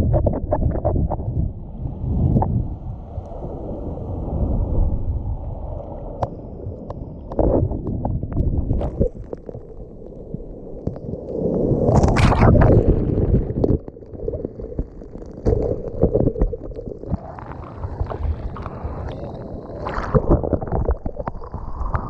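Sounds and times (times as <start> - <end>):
sea surf breaking: 1.8 - 6.2, 17.1 - 20.4
water sloshing over camera: 11.9 - 22.0.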